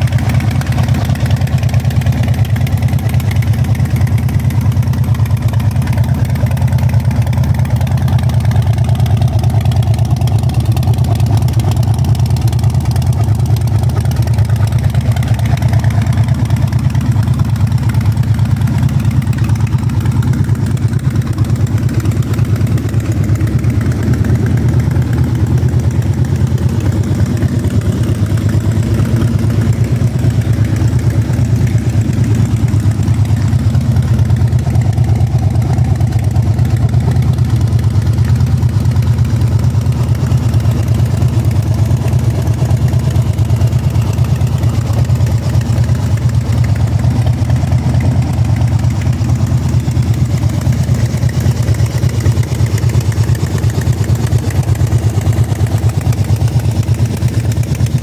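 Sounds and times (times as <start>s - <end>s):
motorcycle engine idling: 0.0s - 58.0s.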